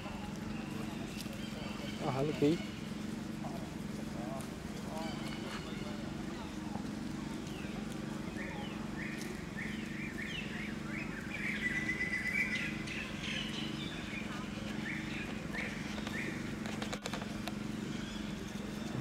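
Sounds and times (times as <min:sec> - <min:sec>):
constant low hum: 0:00.0 - 0:19.0.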